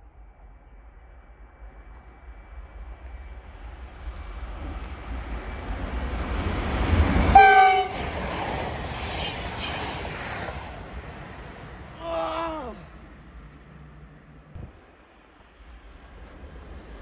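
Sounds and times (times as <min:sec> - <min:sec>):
train horn blast: 0:07.3 - 0:08.0.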